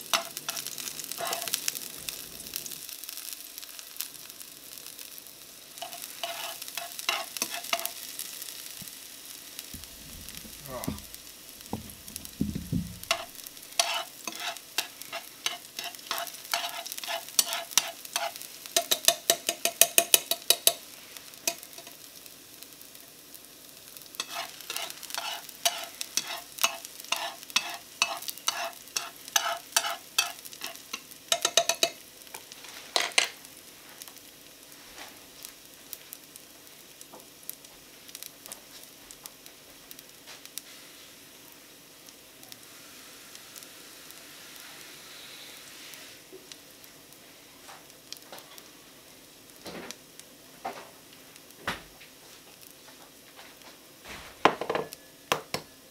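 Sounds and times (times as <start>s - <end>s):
shallot sizzling in a pan: 0.0s - 55.9s
metal chopsticks scraping a pan: 0.1s - 1.6s, 5.8s - 8.0s, 9.8s - 22.0s, 24.2s - 32.0s
chopsticks clacking down: 11.7s - 20.8s, 21.5s - 22.0s, 24.2s - 32.0s.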